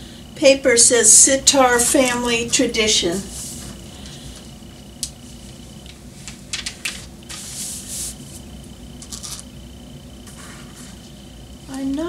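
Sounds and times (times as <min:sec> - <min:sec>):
paper rustling: 0:05.3 - 0:08.4, 0:09.0 - 0:09.5, 0:10.2 - 0:11.2.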